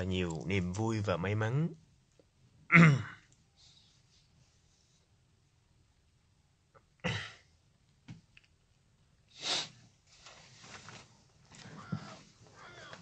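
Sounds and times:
faint shuffling: 10.0s - 13.0s.

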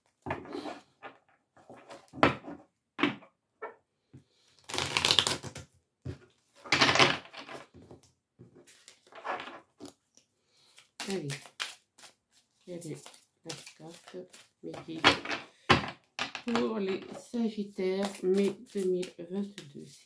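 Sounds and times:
cards being shuffled: 4.6s - 5.6s, 8.6s - 15.4s, 17.8s - 19.7s.

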